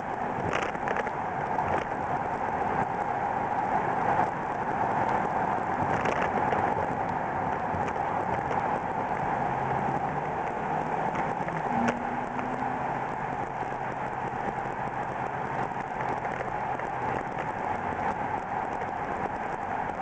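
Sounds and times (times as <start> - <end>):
car road and engine noise: 0.0 - 20.0.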